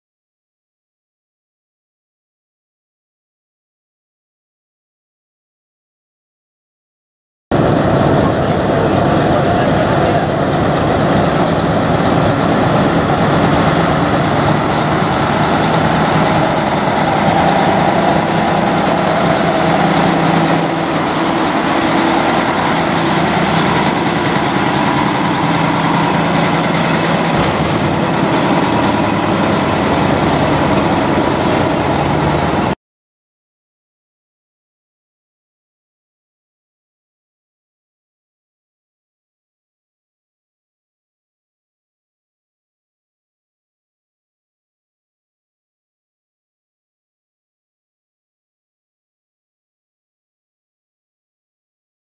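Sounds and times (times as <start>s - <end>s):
diesel truck engine idling: 7.6s - 32.8s.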